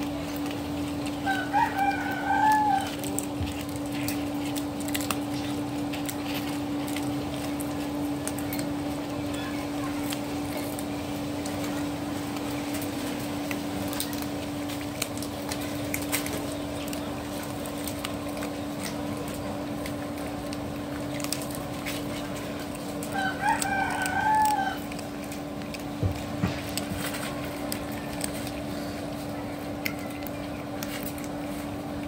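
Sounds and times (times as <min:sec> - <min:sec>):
steady low hum: 0:00.0 - 0:32.0
rooster crowing: 0:01.2 - 0:03.1, 0:23.0 - 0:25.0.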